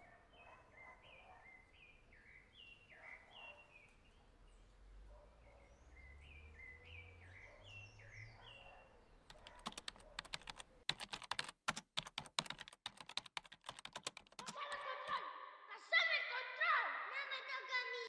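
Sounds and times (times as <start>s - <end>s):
faint birds chirping: 0.0s - 15.7s
typing on laptop keyboard: 9.2s - 15.2s.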